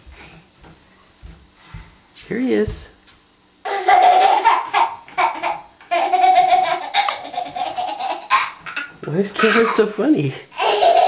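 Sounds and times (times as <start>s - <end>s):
toddler laughing: 3.7s - 9.9s, 10.5s - 11.0s.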